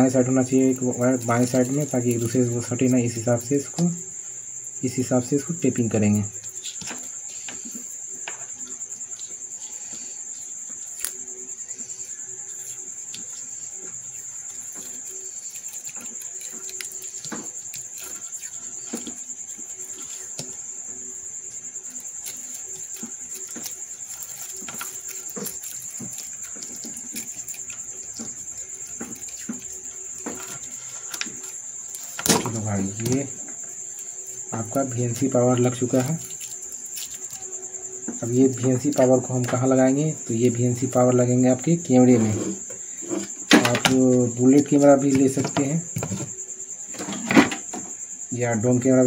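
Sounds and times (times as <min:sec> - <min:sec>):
crickets chirping: 0:00.0 - 0:49.0
electrical tape crinkling: 0:14.4 - 0:20.6, 0:21.8 - 0:34.1.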